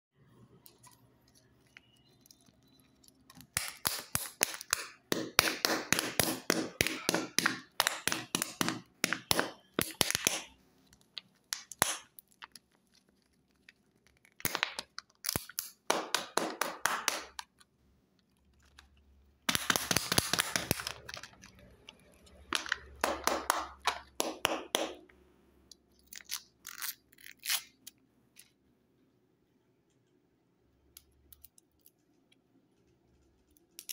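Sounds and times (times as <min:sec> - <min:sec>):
plastic wrappers crinkling and tearing: 0:09.8 - 0:15.8, 0:18.2 - 0:22.9.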